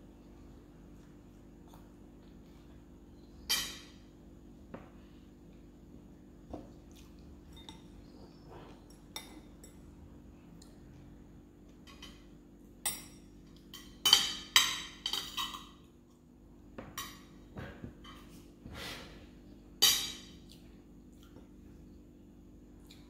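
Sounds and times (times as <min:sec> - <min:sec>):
cutlery clinking on ceramic dishes: 0:03.5 - 0:04.0, 0:07.5 - 0:08.0, 0:11.8 - 0:15.9, 0:19.8 - 0:20.4.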